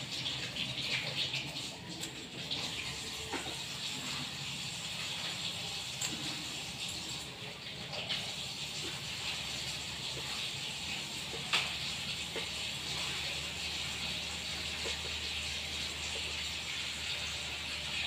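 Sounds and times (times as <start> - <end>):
running water hissing: 0.0 - 18.0.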